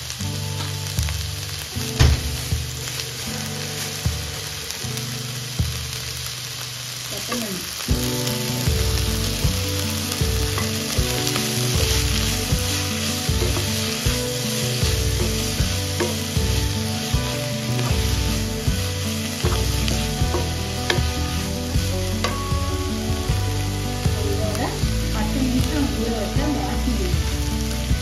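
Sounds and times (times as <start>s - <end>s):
leaves and onions sizzling in a pan: 0.0s - 28.0s
wooden spatula tapping a pan: 8.6s - 22.6s.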